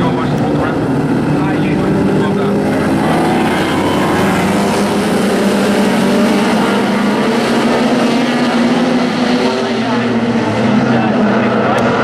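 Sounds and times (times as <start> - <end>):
racing car engines roaring: 0.0 - 12.0.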